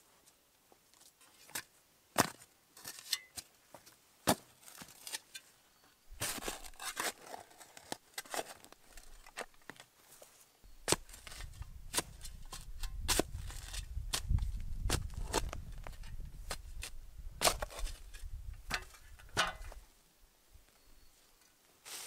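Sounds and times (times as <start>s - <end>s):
shovel scraping and tearing earth: 1.2s - 3.5s, 4.2s - 10.2s, 10.8s - 19.8s
shovel chopping into soil: 1.5s - 3.5s, 4.2s - 5.4s, 6.2s - 8.7s, 10.8s - 19.8s.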